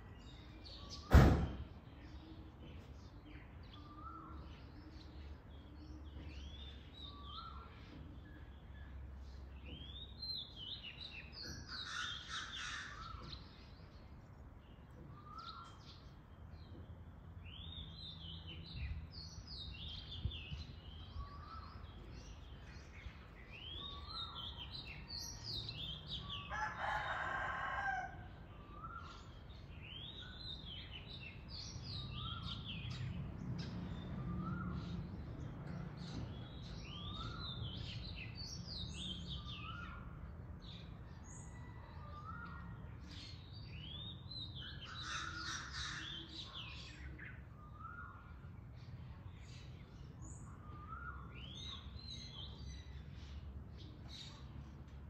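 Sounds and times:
songbirds singing: 0:00.0 - 0:55.0
rooster crowing: 0:26.4 - 0:28.4, 0:41.3 - 0:42.4.

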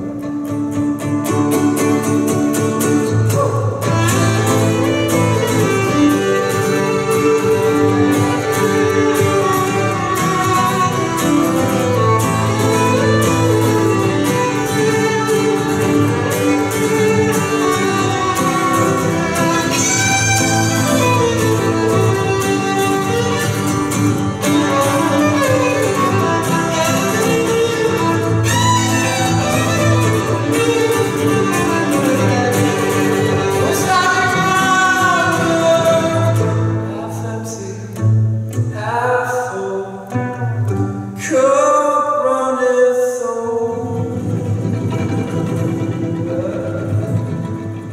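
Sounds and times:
strummed acoustic guitar: 0:00.0 - 0:42.0, 0:43.1 - 0:47.9
bowed violin melody: 0:03.8 - 0:37.0, 0:43.9 - 0:47.9.

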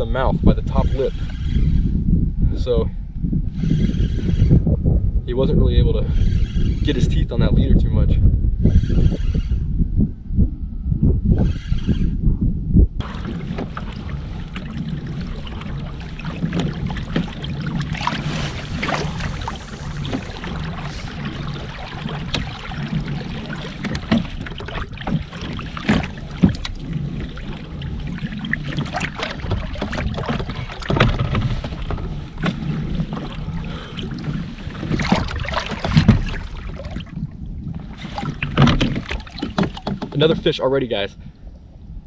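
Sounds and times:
steady low rumble: 0:00.0 - 0:42.0
knocks and clicks of gear: 0:23.7 - 0:27.0, 0:28.5 - 0:33.4, 0:38.1 - 0:40.5.

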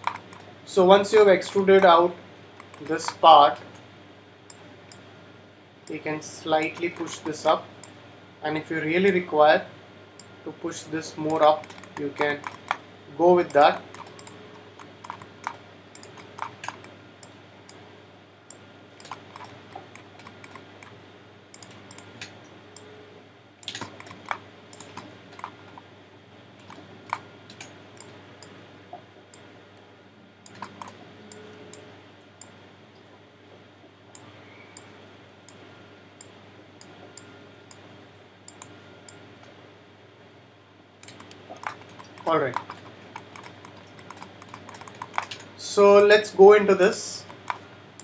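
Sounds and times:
mouse and keyboard clicks: 0:00.0 - 0:00.5, 0:06.6 - 0:07.4, 0:11.2 - 0:12.8, 0:13.4 - 0:17.4, 0:19.0 - 0:21.0, 0:23.6 - 0:25.8, 0:30.5 - 0:31.8, 0:41.0 - 0:45.4, 0:47.3 - 0:47.6
faint steady hum: 0:00.0 - 0:48.0.

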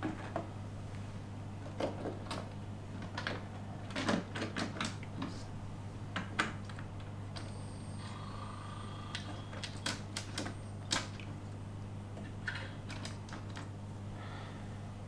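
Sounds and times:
faint high motor whine: 0:07.0 - 0:12.8.

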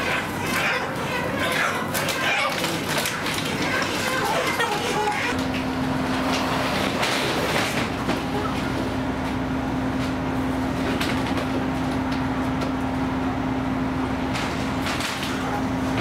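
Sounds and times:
plastic crates clattering: 0:00.0 - 0:08.8, 0:14.3 - 0:16.0
mechanical hum: 0:00.0 - 0:16.0.

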